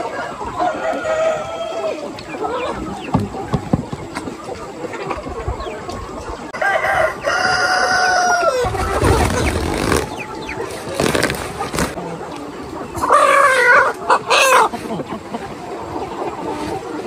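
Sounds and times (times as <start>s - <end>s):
roosters crowing: 0.0s - 2.0s, 6.5s - 12.0s
hens clucking: 0.0s - 17.0s
plastic feed sack rustling: 8.7s - 12.0s.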